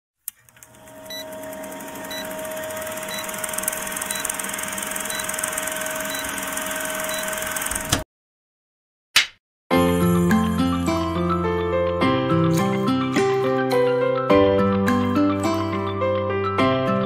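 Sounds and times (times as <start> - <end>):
film projector whirring clatter: 0.3 - 8.0.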